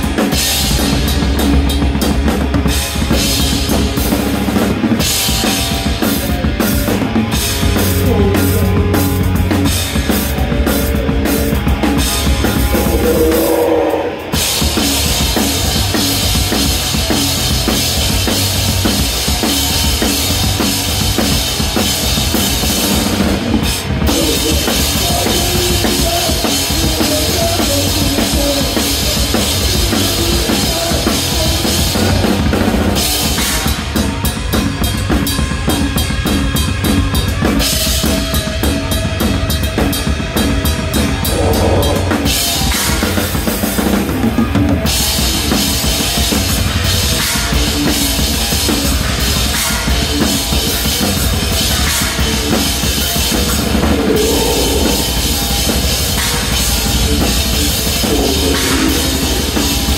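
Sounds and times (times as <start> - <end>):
drum kit played hard: 0.0 - 59.9
bass drum and snare: 39.8 - 59.9.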